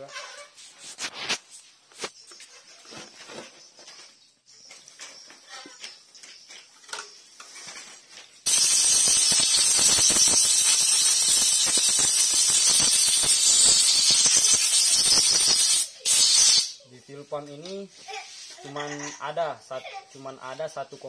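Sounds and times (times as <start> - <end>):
compressed-air blow gun hissing: 8.5 - 16.8.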